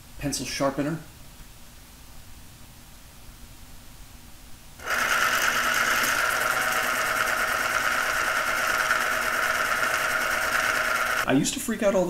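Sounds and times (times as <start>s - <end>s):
electric pencil sharpener grinding: 4.8s - 11.3s.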